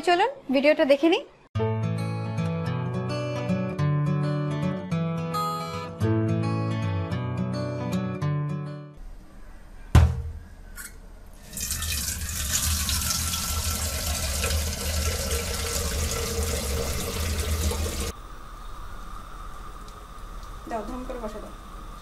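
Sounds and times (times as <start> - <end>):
tap water pouring into a pot: 11.4 - 18.1.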